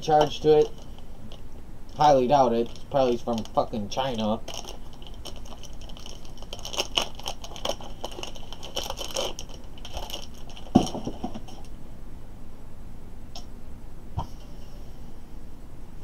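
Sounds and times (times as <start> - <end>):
plastic packaging crinkling: 0.0 - 11.7.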